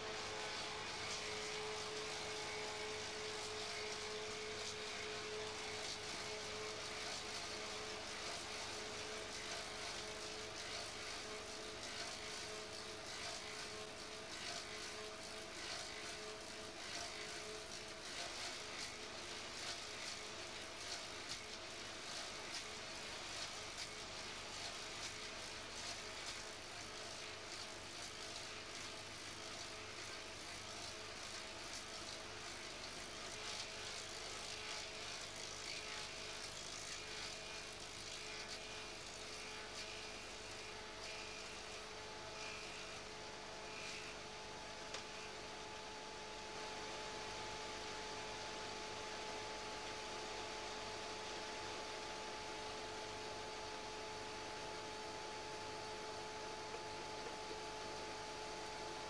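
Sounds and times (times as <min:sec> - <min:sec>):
lathe shaping wood: 0:00.0 - 0:44.2.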